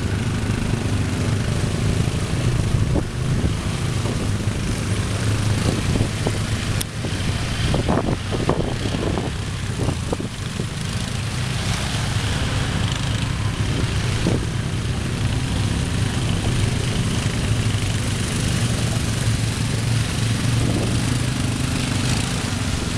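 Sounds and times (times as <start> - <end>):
quad bike engines running: 0.0 - 22.9
water splashing and churning: 0.0 - 22.9.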